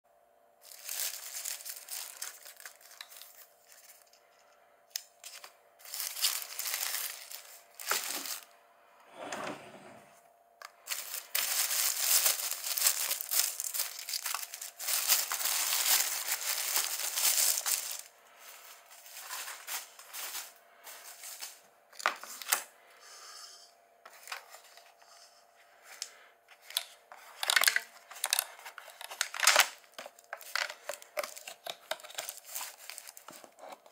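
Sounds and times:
paper box crackling: 0.6s - 4.1s, 5.2s - 8.5s, 10.8s - 22.5s, 27.4s - 33.9s
plastic bag rustling: 0.6s - 4.2s, 5.2s - 8.6s, 10.7s - 22.5s, 26.6s - 33.9s.

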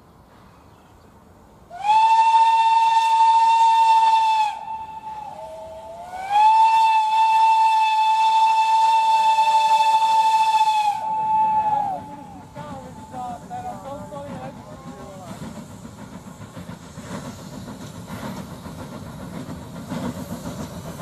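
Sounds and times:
steam locomotive whistle blasts: 1.7s - 13.4s.

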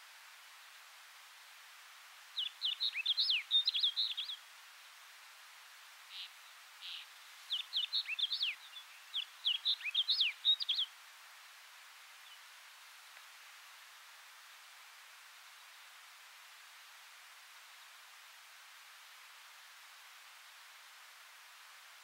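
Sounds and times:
bird singing: 2.4s - 4.4s, 6.1s - 10.9s.

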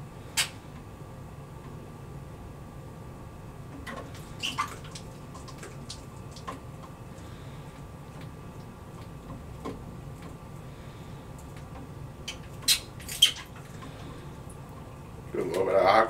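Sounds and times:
light clicks and splashes: 3.7s - 10.7s, 11.3s - 15.7s.

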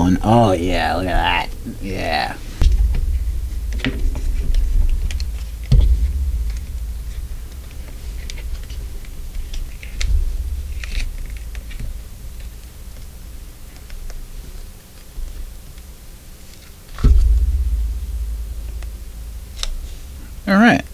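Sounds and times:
dull thumps: 2.4s - 14.5s, 17.0s - 20.9s.

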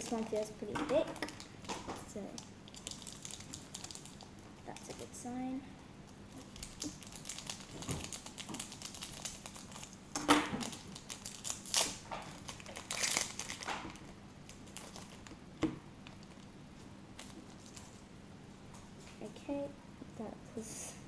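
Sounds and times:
foil wrapper crinkling: 2.7s - 5.1s, 6.1s - 15.4s.

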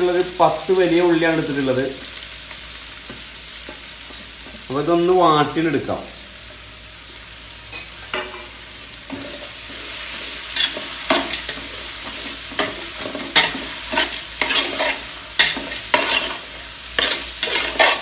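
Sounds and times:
onions sizzling in a pot: 0.0s - 18.0s
metal spoon scraping a pot: 10.6s - 18.0s.

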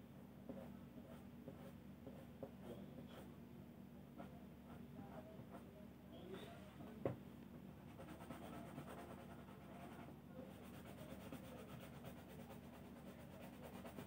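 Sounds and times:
rubbing strokes on paper: 7.9s - 14.0s.

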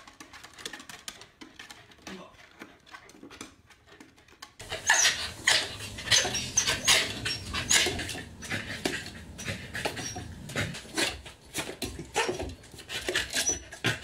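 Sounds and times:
high squeaky dog notes: 4.6s - 11.1s.

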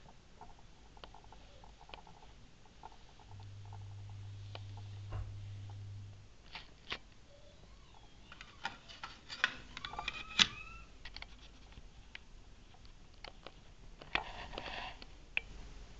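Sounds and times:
low steady hum: 0.0s - 15.9s
plastic parts clicking and tapping: 8.3s - 15.5s.

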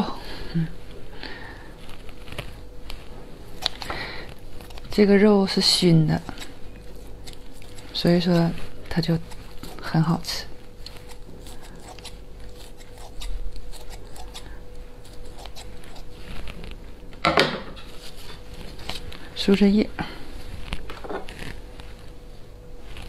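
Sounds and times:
faint steady hum: 0.0s - 23.0s
soft rustle: 0.7s - 3.6s, 7.4s - 9.9s, 15.7s - 17.0s, 17.8s - 23.0s
scissors snipping meat: 3.6s - 3.9s, 10.8s - 16.1s.

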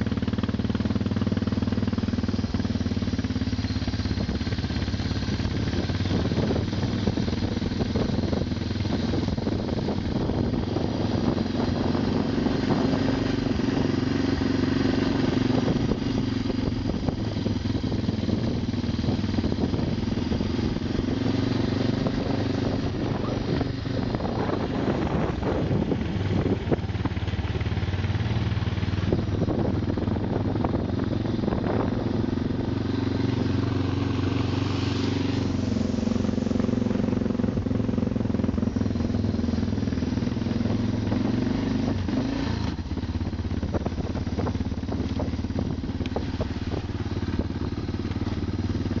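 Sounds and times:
vehicle engine running: 0.0s - 49.0s.

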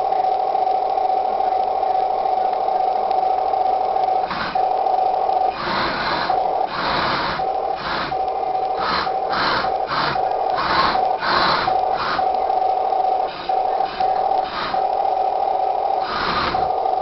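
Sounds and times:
steady high hum: 0.0s - 17.0s
model tank motors whirring: 5.4s - 15.0s, 16.0s - 17.0s.

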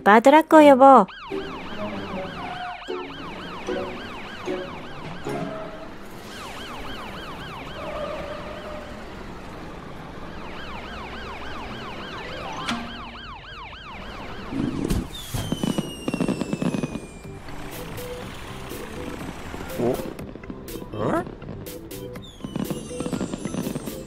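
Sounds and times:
cartoon ambulance siren wailing: 0.7s - 20.2s, 22.2s - 24.0s
firework crackling: 6.1s - 7.6s, 14.6s - 24.0s
firework bang: 14.6s - 17.3s
falling firework whistle: 14.8s - 17.4s, 22.2s - 24.0s.

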